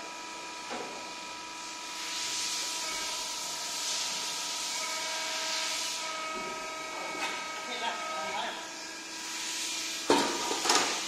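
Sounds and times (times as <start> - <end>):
machine hum with fixed tones: 0.0 - 11.0
loud hydraulic hiss: 1.6 - 6.7, 9.0 - 11.0.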